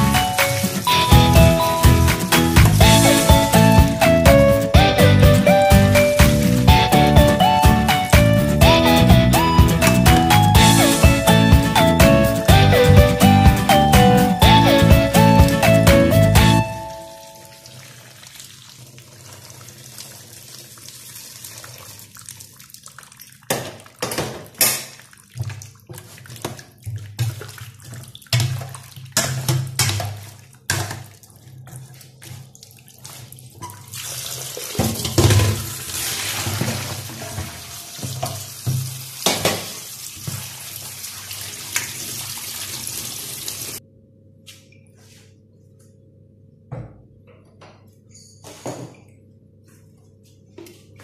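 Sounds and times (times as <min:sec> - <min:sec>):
water poured into metal bowl: 0:27.2 - 0:39.2.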